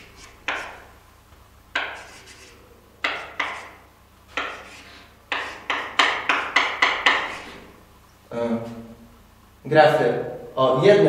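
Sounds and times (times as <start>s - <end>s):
chalk writing on blackboard: 0.0s - 0.9s, 1.7s - 7.6s.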